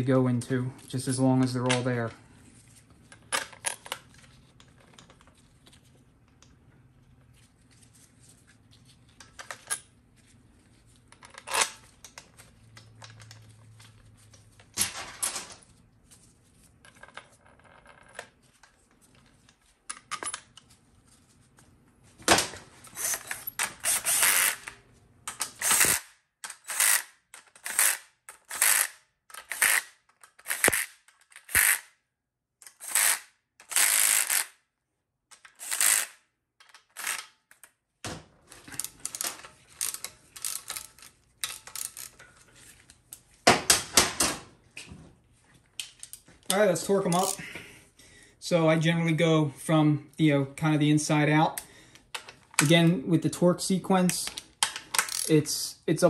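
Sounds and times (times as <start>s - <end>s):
cordless driver spinning bolts: 23.0s - 29.8s, 30.4s - 31.8s, 35.4s - 36.1s, 38.8s - 42.2s, 54.8s - 55.4s.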